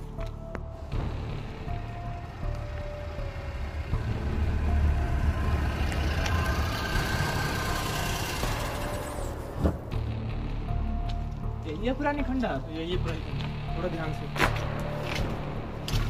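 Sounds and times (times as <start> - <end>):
car engine idling: 0.6 - 11.6.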